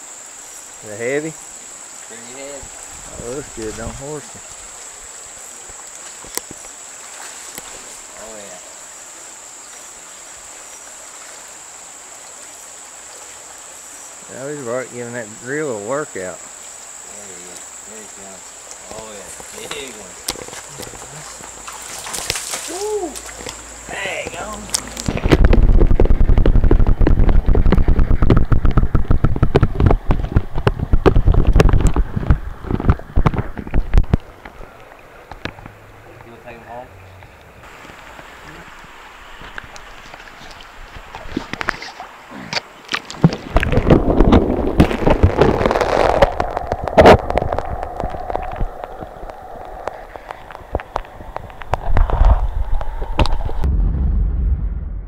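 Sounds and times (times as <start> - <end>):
water splashing and gurgling: 2.1 - 55.0
pops and knocks against camera: 19.4 - 21.0, 24.3 - 34.6, 42.9 - 53.6
muffled underwater water rumble: 24.4 - 38.9, 43.3 - 55.0
rapid crackling knocks: 25.0 - 34.3.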